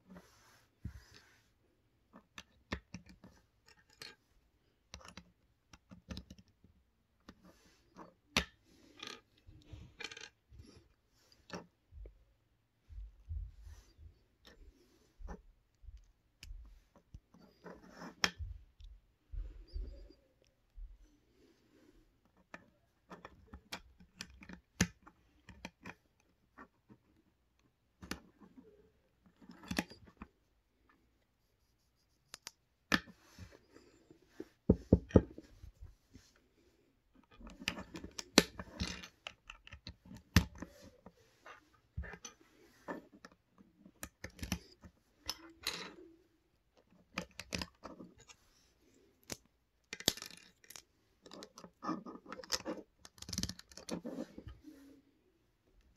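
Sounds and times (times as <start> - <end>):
plastic bricks clicking and rattling: 49.2 - 54.1.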